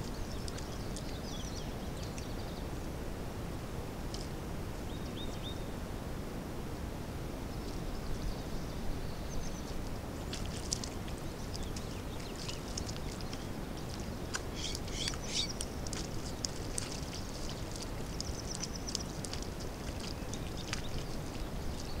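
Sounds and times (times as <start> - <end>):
small birds chirping: 10.7 - 22.0.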